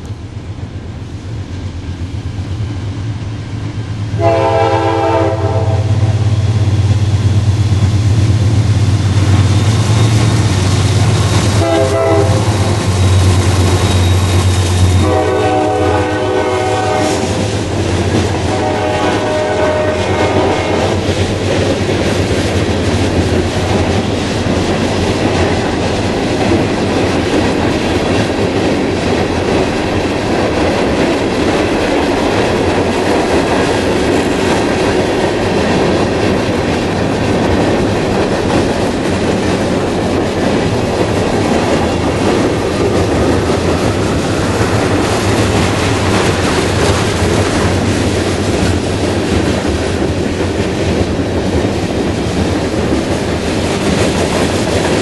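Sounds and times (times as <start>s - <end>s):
train wheels clickety-clack: 0.0s - 55.0s
locomotive air horn blasts: 4.2s - 6.5s, 11.6s - 13.0s, 14.6s - 17.5s, 18.4s - 21.0s.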